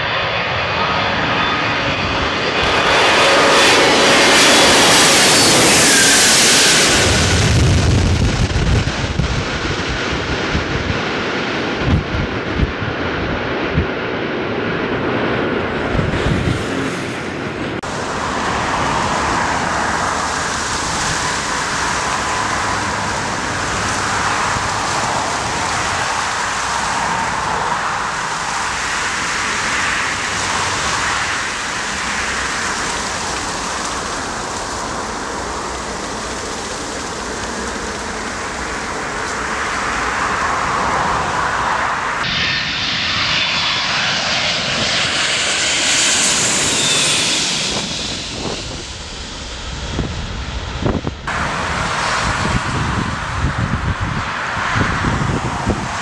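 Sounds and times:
jet engines roaring: 0:00.0 - 0:56.0
wind buffeting microphone: 0:01.0 - 0:42.3, 0:44.3 - 0:56.0.

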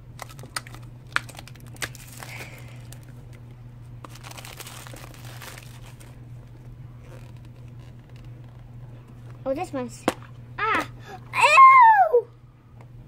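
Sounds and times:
plastic wrap crinkling and tearing: 0:00.2 - 0:03.2, 0:04.0 - 0:08.2.

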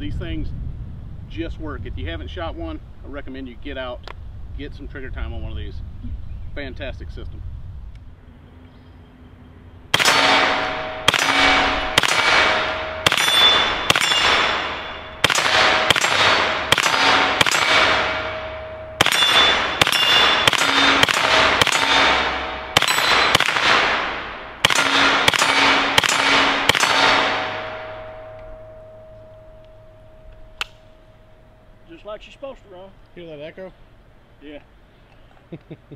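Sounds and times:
rifle shots with echo: 0:09.9 - 0:29.5.

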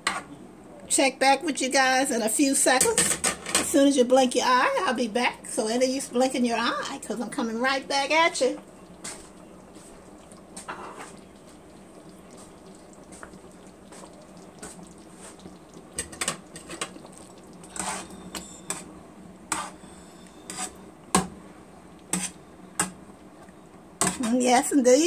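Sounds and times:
spatula stirring thick sauce: 0:08.7 - 0:18.9, 0:19.5 - 0:20.8
spatula scraping against pan: 0:09.0 - 0:10.0, 0:10.6 - 0:11.2, 0:13.9 - 0:18.9, 0:19.5 - 0:20.8, 0:22.1 - 0:22.4.

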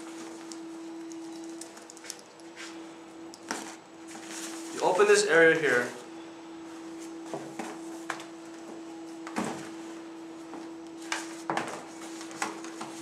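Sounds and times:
steady hum: 0:00.0 - 0:13.0
nylon fabric rustling: 0:03.6 - 0:06.0.

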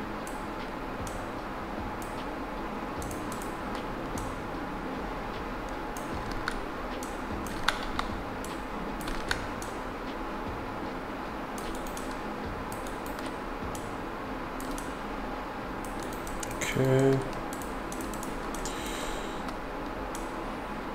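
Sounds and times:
steady low hiss: 0:00.0 - 0:20.9
keyboard clicks: 0:03.0 - 0:04.3, 0:06.0 - 0:09.8, 0:11.6 - 0:13.9, 0:15.8 - 0:20.3
computer mouse clicks: 0:03.0 - 0:04.4, 0:06.0 - 0:09.8, 0:11.6 - 0:13.9, 0:14.6 - 0:15.0, 0:15.8 - 0:20.3.

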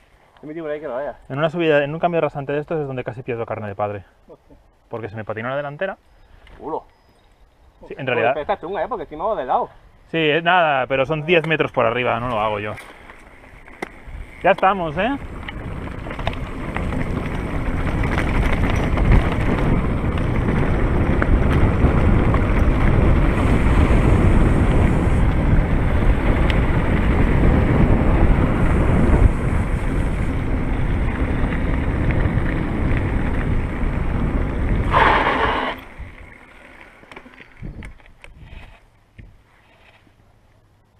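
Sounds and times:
wind buffeting microphone: 0:08.0 - 0:36.5, 0:37.5 - 0:39.4
bike rumbling over rough trail: 0:11.3 - 0:40.2.

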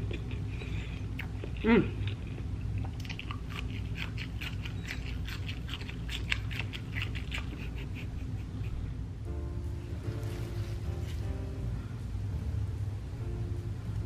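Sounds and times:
chewing crunches: 0:00.0 - 0:07.9
low steady hum: 0:00.0 - 0:14.0.

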